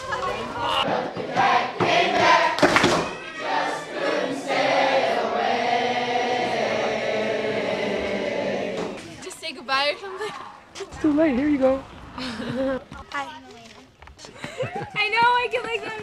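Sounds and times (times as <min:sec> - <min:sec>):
group of voices singing: 0:00.5 - 0:09.2.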